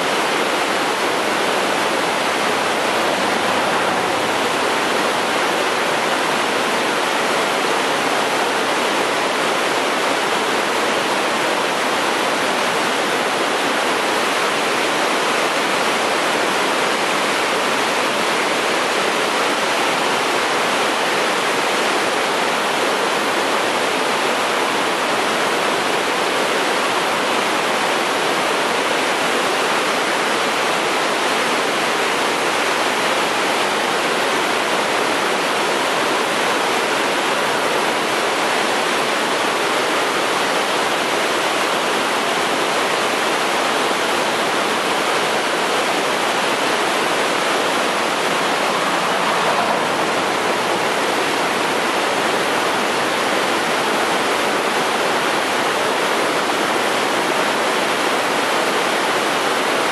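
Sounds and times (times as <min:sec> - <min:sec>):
freight train rolling over bridge: 0:01.2 - 0:05.8, 0:47.4 - 0:53.2.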